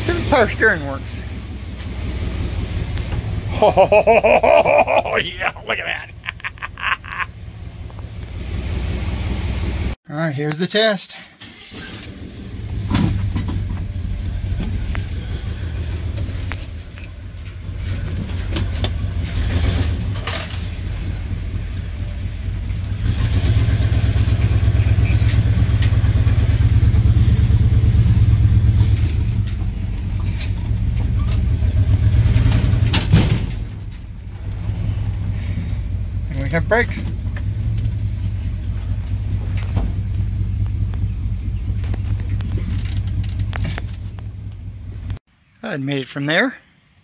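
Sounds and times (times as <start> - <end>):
low pulsing engine exhaust: 33.7 - 45.2.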